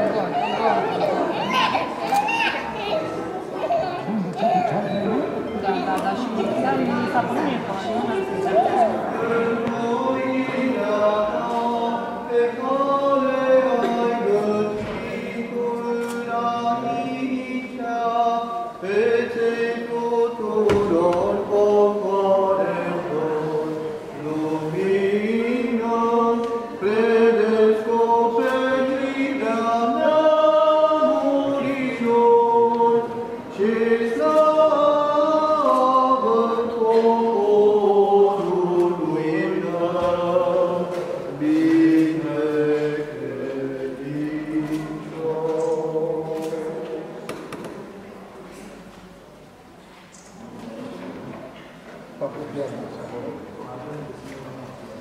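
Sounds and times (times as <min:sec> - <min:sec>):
voices chanting without instruments: 0:06.0 - 0:47.8.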